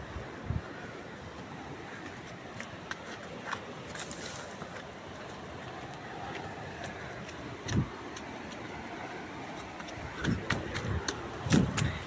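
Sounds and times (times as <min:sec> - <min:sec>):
leaves and twigs crunching: 0:03.0 - 0:06.3.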